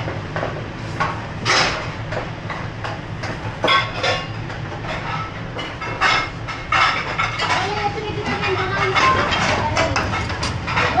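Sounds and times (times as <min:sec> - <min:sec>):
kitchen hum: 0:00.0 - 0:11.0
utensils clinking against pans: 0:00.4 - 0:11.0.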